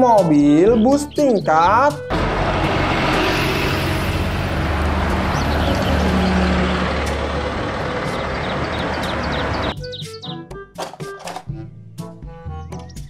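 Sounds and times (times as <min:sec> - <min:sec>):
street traffic noise: 0:00.8 - 0:10.2
bus engine idling: 0:02.1 - 0:09.8.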